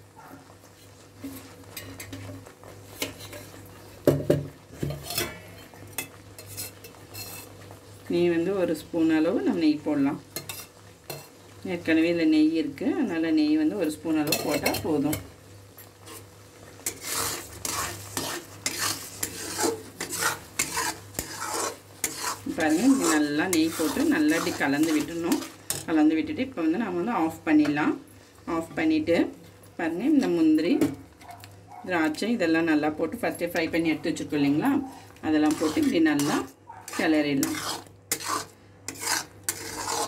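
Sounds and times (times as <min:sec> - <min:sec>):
light sizzle: 0:00.0 - 0:40.0
metal spatula scraping iron pan: 0:04.8 - 0:07.5, 0:10.4 - 0:11.4, 0:16.0 - 0:25.9, 0:35.4 - 0:40.0.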